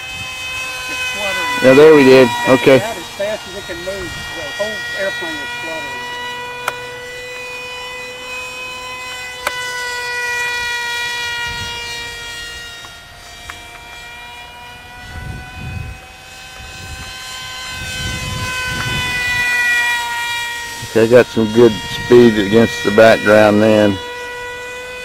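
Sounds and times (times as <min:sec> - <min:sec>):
wind buffeting microphone: 0:00.0 - 0:06.6, 0:10.6 - 0:12.7, 0:15.0 - 0:19.8, 0:20.6 - 0:23.5
model plane motor whine: 0:00.0 - 0:25.0.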